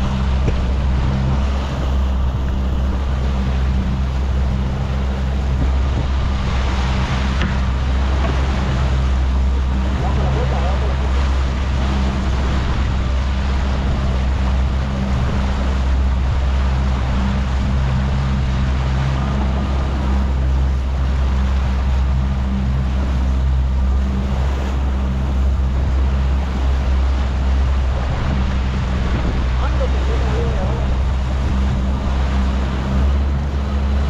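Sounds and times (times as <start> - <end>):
outboard motor running: 0.0 - 34.0
water churning: 0.0 - 34.0
wind rushing: 11.0 - 30.0.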